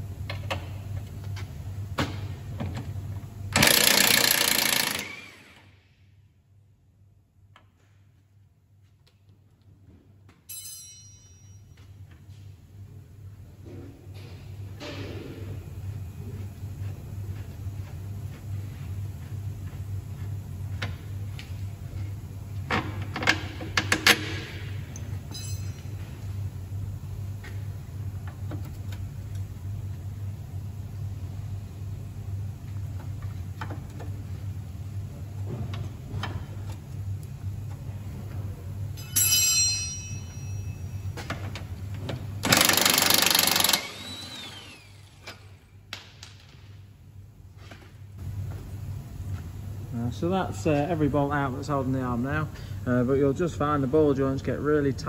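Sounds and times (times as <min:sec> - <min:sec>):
steady low hum: 0:04.6 - 0:55.0
metallic clatter with ringing: 0:10.5 - 0:11.8, 0:25.3 - 0:26.1, 0:39.0 - 0:41.1
metal tools clinking: 0:25.3 - 0:26.0.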